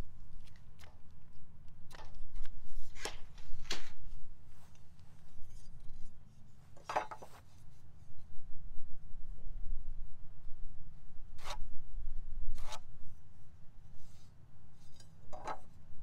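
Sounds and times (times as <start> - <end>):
low steady rumble: 7.6 - 16.0
tape measure blade retracting: 12.6 - 12.8.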